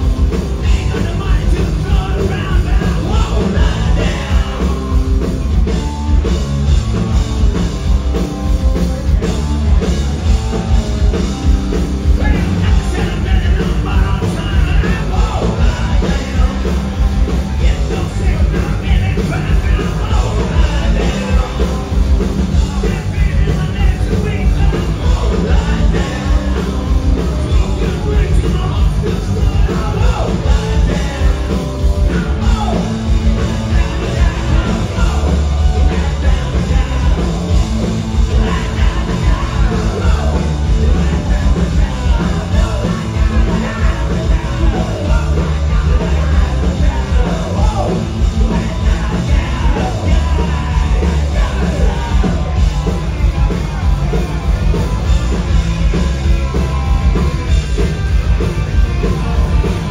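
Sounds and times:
punk rock band playing: 0.0s - 59.9s
shouted vocals: 12.1s - 55.4s.

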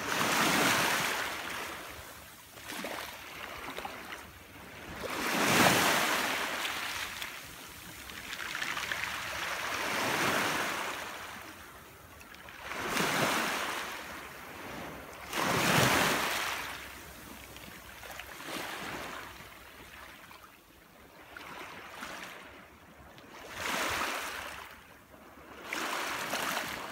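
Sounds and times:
small waves washing over stones: 2.6s - 11.4s.

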